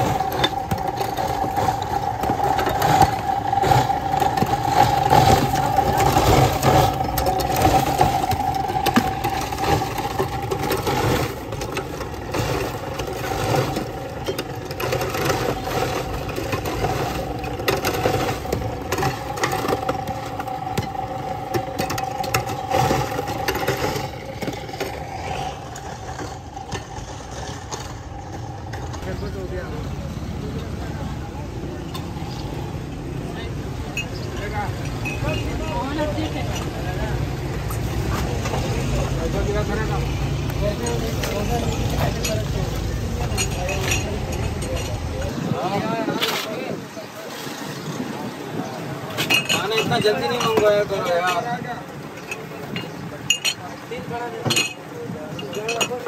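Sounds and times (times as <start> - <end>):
motor humming: 0.0 - 29.0
clinks and rattles: 0.0 - 29.4, 33.8 - 45.4, 49.1 - 56.0.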